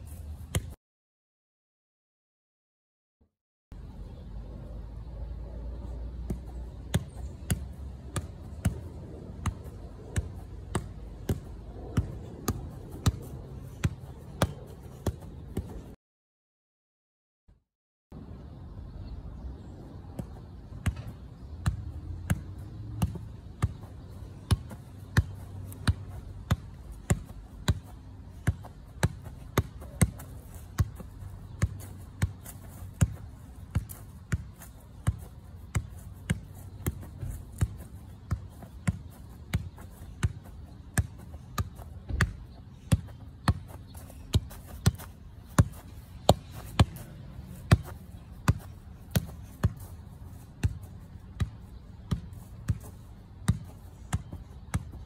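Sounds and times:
ball being kicked thuds: 24.4s - 47.0s.

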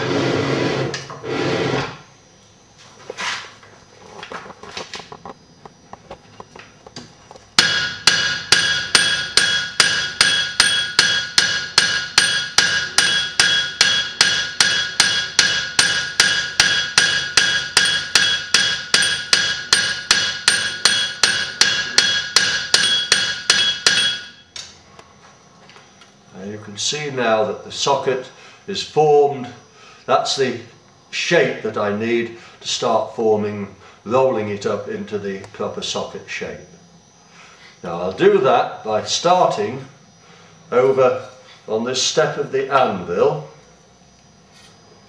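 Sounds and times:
hammer striking hot iron on anvil: 7.6s - 24.7s.

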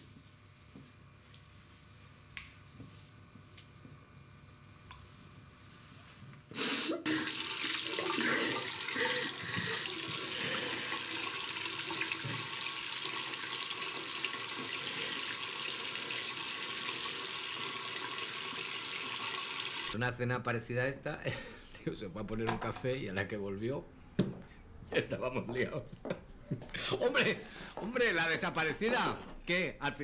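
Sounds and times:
tap water running into sink: 7.2s - 20.0s.

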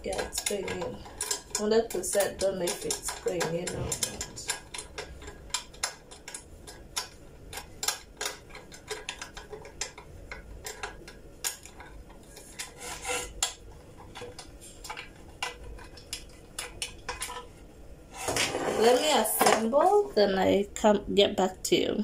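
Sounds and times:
metal scraping: 3.4s - 4.6s, 12.4s - 13.4s, 18.1s - 19.3s.

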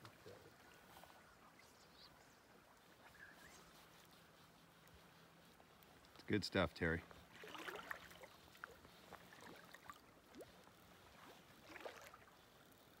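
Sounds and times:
river water lapping: 0.0s - 13.0s
small splashes: 7.3s - 12.8s.

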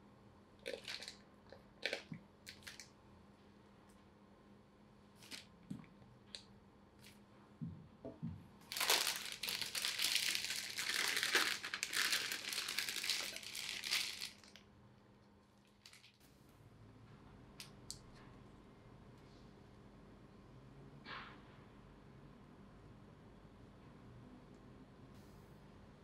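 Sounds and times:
plastic piping bag crinkling: 0.6s - 1.2s, 1.8s - 2.9s, 5.2s - 5.5s, 8.6s - 14.6s, 15.6s - 16.2s.

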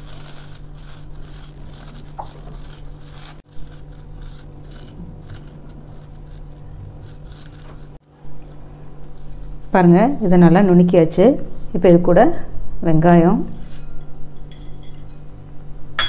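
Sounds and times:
fried garlic crackling: 0.0s - 9.8s.

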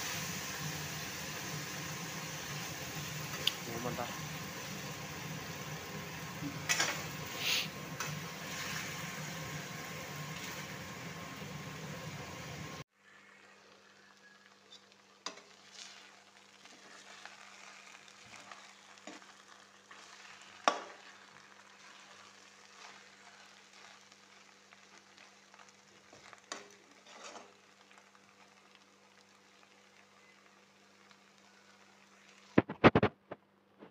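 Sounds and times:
pasta sizzling in a pan: 0.0s - 33.0s
spatula scraping a pan: 6.6s - 9.0s, 14.7s - 25.3s, 26.1s - 27.6s.

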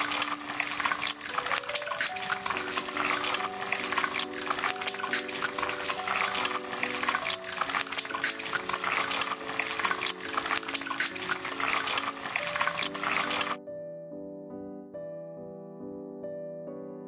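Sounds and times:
eggs sizzling in hot oil: 0.0s - 13.6s
background music: 0.0s - 17.0s.

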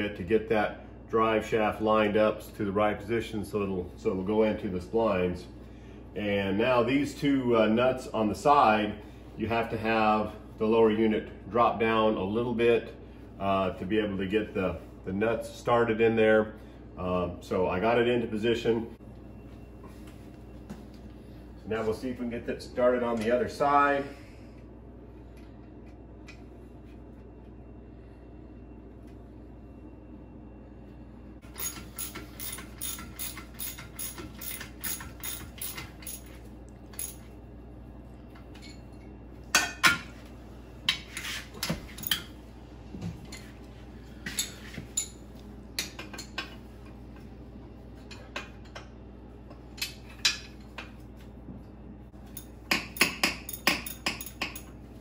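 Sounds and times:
ratchet clicking: 31.5s - 36.3s
metallic tool clinks: 31.6s - 37.3s.

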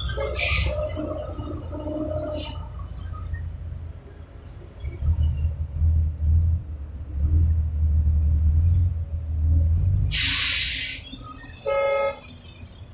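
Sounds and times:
truck engine rumbling: 0.0s - 12.9s
air brakes hissing: 10.0s - 11.2s.

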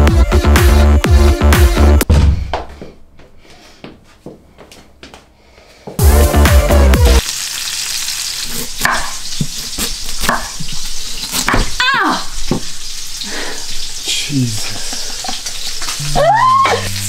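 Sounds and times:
pan sizzling: 6.0s - 17.0s
knife chopping on wooden board: 8.8s - 10.7s.

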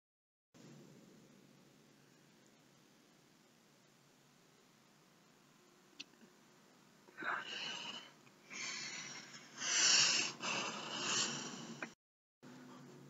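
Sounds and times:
man sniffing and breathing heavily: 7.2s - 11.9s.

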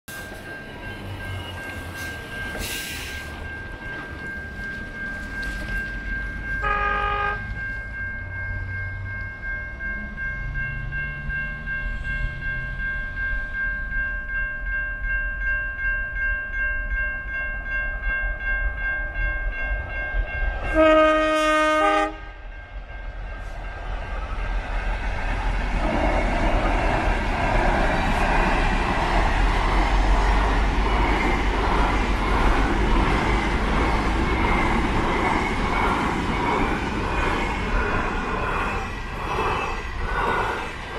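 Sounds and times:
freight train rumbling past: 0.1s - 15.2s, 18.0s - 40.9s
train horn blast: 6.6s - 7.5s, 20.6s - 22.4s.

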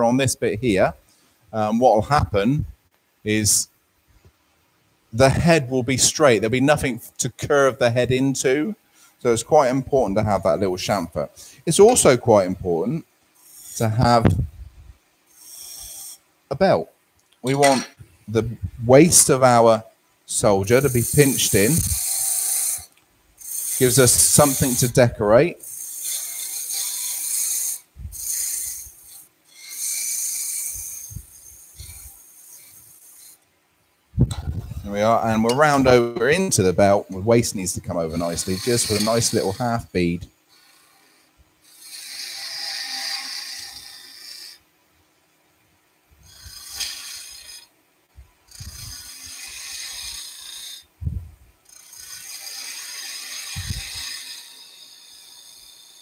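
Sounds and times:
chisel scraping spinning wood: 5.2s - 14.5s, 15.3s - 16.2s, 17.4s - 33.4s, 34.5s - 44.6s, 46.3s - 47.7s, 48.5s - 50.9s, 51.7s - 56.0s
lathe tool cutting wood: 13.4s - 14.3s, 15.3s - 16.2s, 20.3s - 33.4s, 34.9s - 44.6s, 48.5s - 50.9s, 51.7s - 56.0s.

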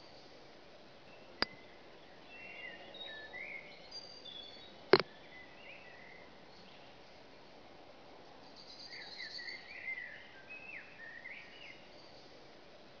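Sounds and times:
faint outdoor background hiss: 0.0s - 13.0s.

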